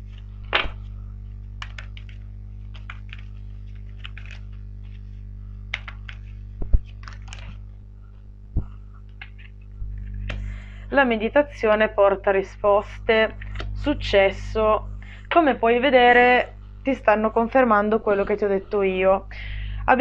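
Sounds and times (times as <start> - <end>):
cards being shuffled: 0.0 - 7.7, 9.0 - 10.4
low hum: 0.0 - 20.0.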